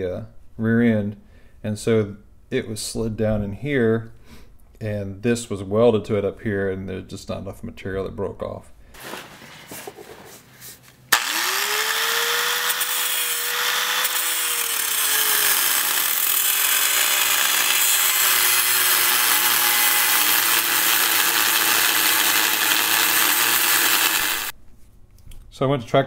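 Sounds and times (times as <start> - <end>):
electric grinder grinding steel: 11.1 - 24.6.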